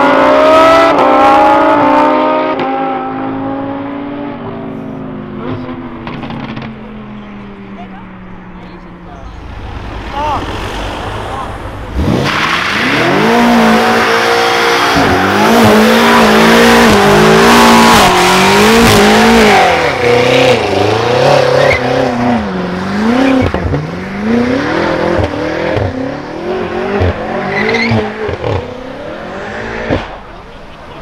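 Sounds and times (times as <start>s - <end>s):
car engine revving: 0.0s - 31.0s
tyres screeching: 26.8s - 31.0s.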